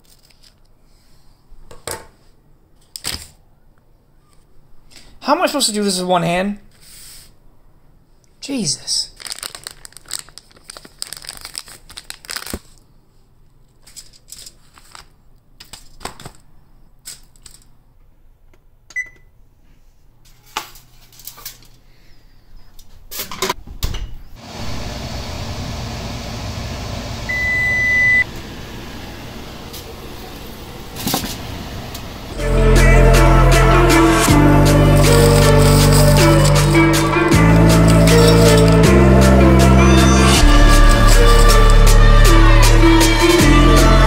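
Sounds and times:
plastic film crinkling: 0.0 - 0.7, 9.1 - 12.9, 13.6 - 16.4, 34.9 - 36.7
oven keypad beep: 18.9 - 19.3, 27.3 - 28.2.

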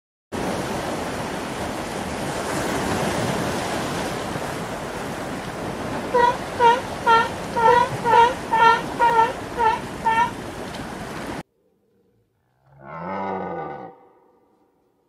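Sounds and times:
ocean water rushing: 0.4 - 11.4
pitched animal-like call: 6.1 - 10.4.

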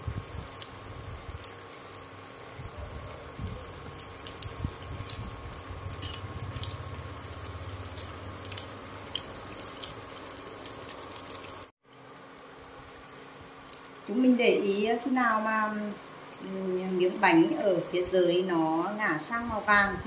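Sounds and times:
oil sizzling and bubbling: 0.0 - 17.3
sharp pops and crackles: 0.1 - 12.3, 13.6 - 14.0.

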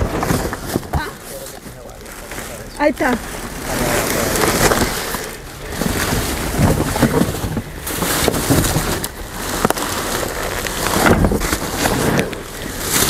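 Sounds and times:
wind buffeting microphone: 2.8 - 13.0.

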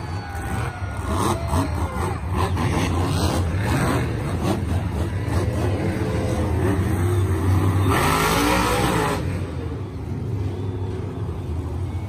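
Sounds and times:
truck engine revving: 0.0 - 11.5
other truck engines running: 0.0 - 12.0.

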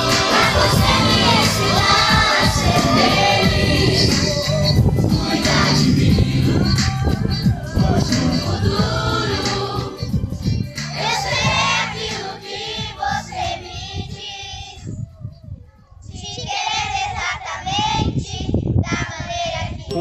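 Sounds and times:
children singing: 0.0 - 4.4, 5.2 - 10.0.

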